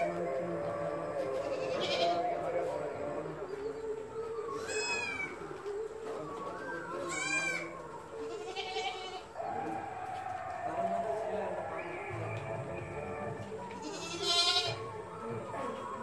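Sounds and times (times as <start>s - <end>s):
goats bleating: 0.9s - 2.4s, 4.5s - 5.4s, 7.0s - 12.3s, 13.8s - 14.9s.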